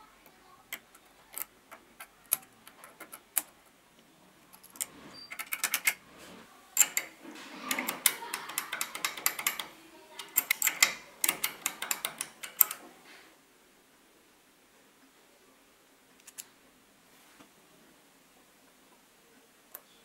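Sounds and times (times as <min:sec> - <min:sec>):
metal parts clicking and rattling: 0:00.7 - 0:03.6, 0:04.5 - 0:06.0, 0:06.8 - 0:12.8.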